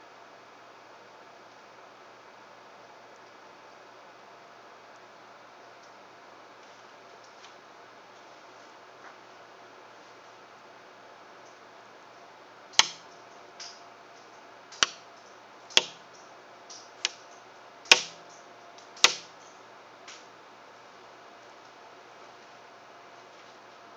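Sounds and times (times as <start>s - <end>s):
miniature crossbow shot clicks: 12.8s - 13.1s, 14.8s - 15.0s, 15.7s - 16.0s, 17.9s - 18.2s, 19.0s - 19.3s.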